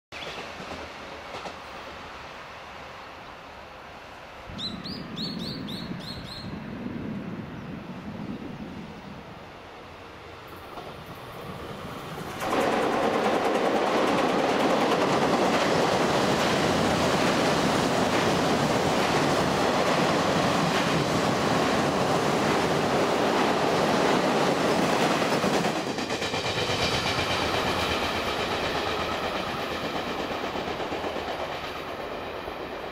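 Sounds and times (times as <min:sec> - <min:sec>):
clickety-clack over rail joints: 0:00.2 - 0:01.8, 0:10.5 - 0:32.9
train wheels rumbling: 0:00.2 - 0:02.1, 0:04.5 - 0:32.9.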